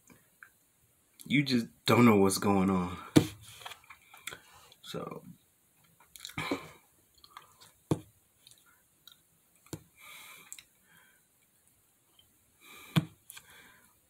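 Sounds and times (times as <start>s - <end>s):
lip smacks and tongue clicks: 6.0s - 6.4s, 7.1s - 7.6s, 8.4s - 9.8s, 10.4s - 10.7s
soft breathing: 9.9s - 11.4s, 12.6s - 14.0s.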